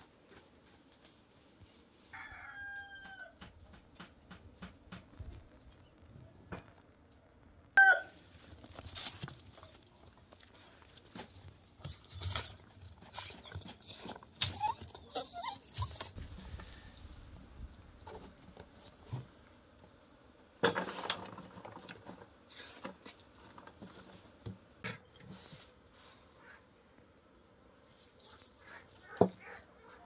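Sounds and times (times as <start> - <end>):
high wavering animal whines: 13.4 - 16.2.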